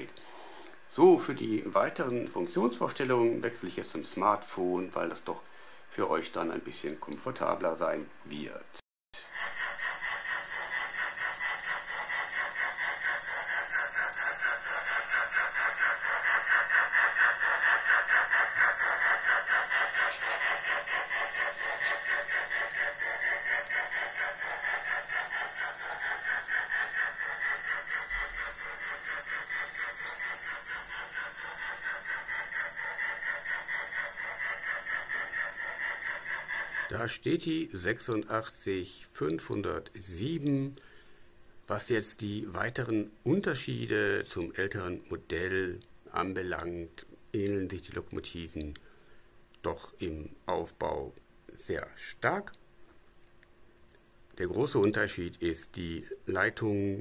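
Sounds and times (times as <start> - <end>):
model train wheels clattering: 9.2 - 37.2.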